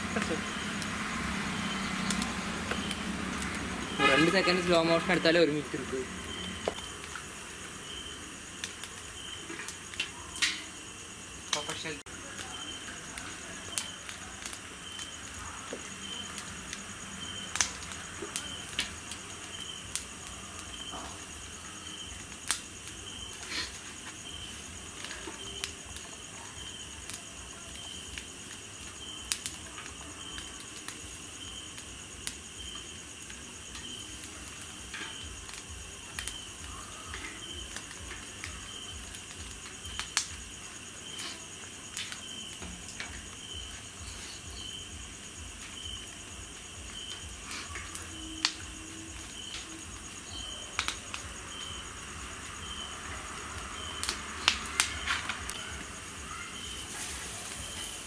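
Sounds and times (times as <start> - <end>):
high continuous insect trill: 0.0 - 58.0
insects chirping: 0.0 - 58.0
sharp clicks and pops: 9.6 - 10.7, 50.7 - 51.3.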